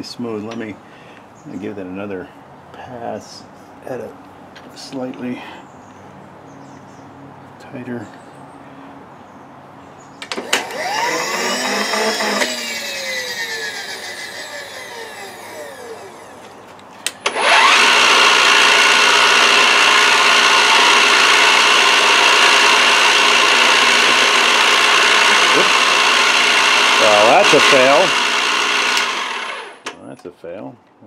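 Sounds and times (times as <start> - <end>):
milling machine spindle whining: 10.2 - 16.5, 17.2 - 29.9
end mill cutting copper: 10.2 - 30.0.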